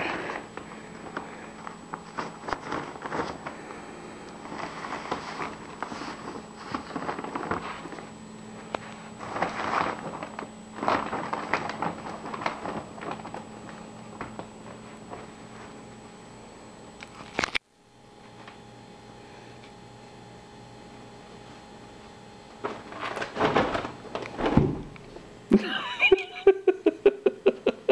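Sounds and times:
plastic bag rustling and crinkling: 0:00.0 - 0:15.9, 0:22.5 - 0:25.4.

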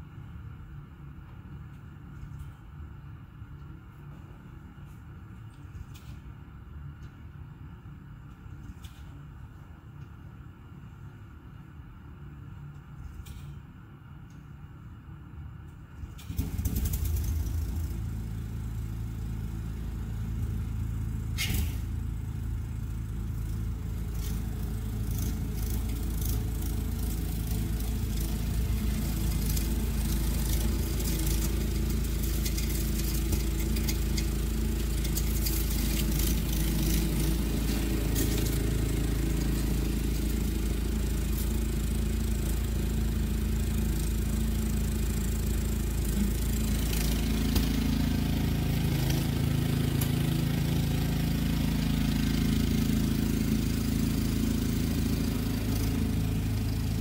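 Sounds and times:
snowblower engine running: 0:15.8 - 0:57.0.

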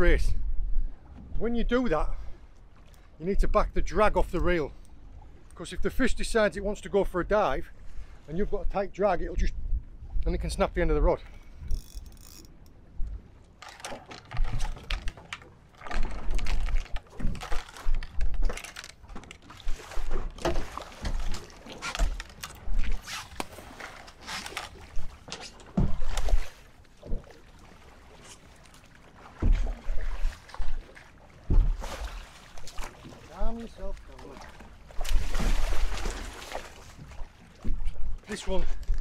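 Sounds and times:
fish thrashing and splashing: 0:13.6 - 0:28.0, 0:34.3 - 0:37.4.

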